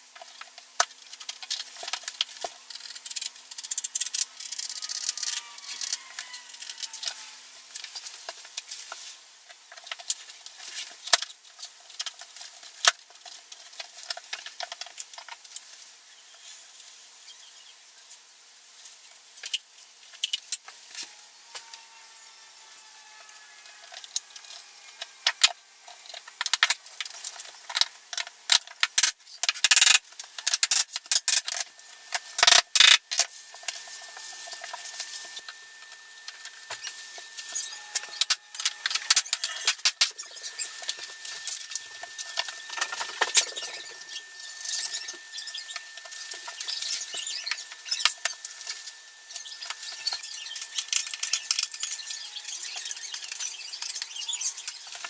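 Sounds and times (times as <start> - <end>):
faint high whine: 29.8 - 55.0.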